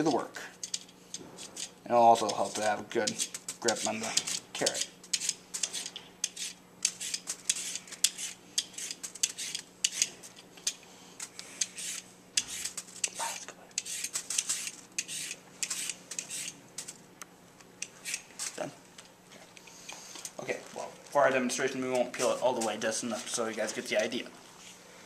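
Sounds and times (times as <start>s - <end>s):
peeler scraping a carrot: 0.6s - 10.8s, 11.6s - 16.6s, 17.8s - 18.6s.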